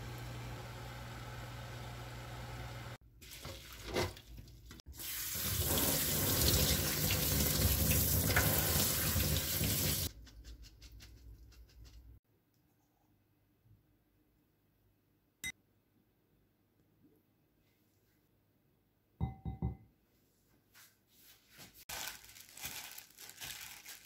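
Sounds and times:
tap water running into strainer: 0:03.2 - 0:10.1.

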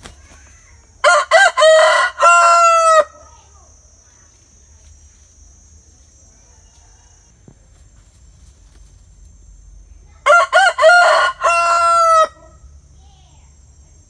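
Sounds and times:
rooster crowing: 0:01.0 - 0:03.2, 0:06.4 - 0:07.4, 0:10.2 - 0:12.7.

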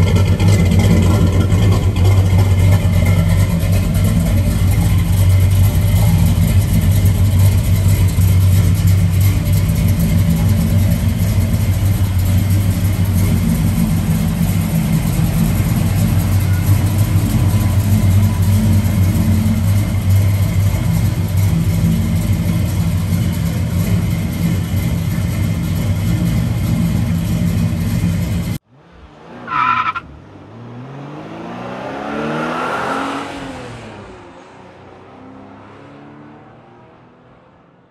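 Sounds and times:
pickup engine idling: 0:00.0 - 0:29.6
short tone: 0:15.2 - 0:19.9.

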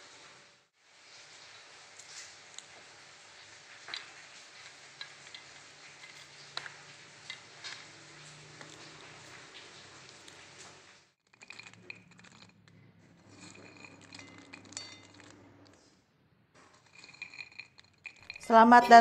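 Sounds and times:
pods clinking on ceramic plate: 0:11.4 - 0:15.4, 0:16.6 - 0:19.0.

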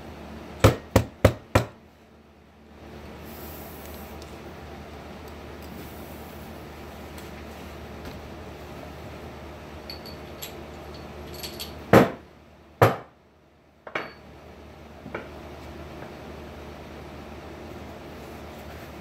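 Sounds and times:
metal tools clinking on workbench: 0:09.9 - 0:11.8, 0:13.9 - 0:14.2.

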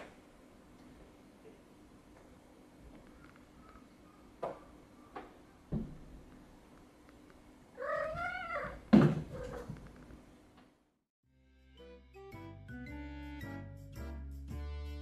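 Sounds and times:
cat meowing: 0:07.8 - 0:09.7.

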